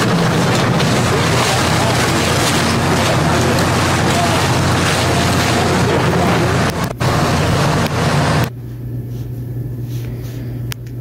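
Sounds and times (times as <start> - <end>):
excavator engine rumble: 0.0 - 8.5.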